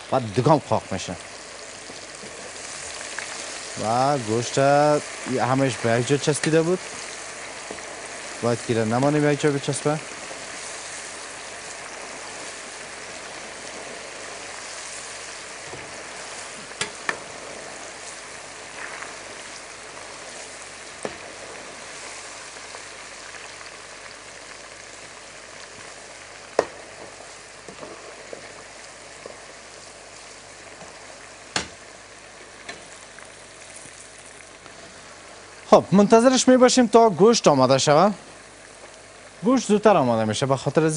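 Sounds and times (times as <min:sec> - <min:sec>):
chicken deep-frying in oil: 0:00.0 - 0:40.9.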